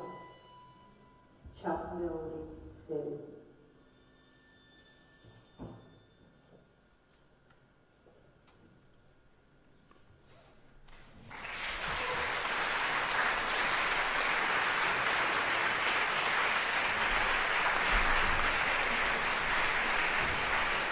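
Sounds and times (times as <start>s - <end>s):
audience applause: 11.2s - 20.9s.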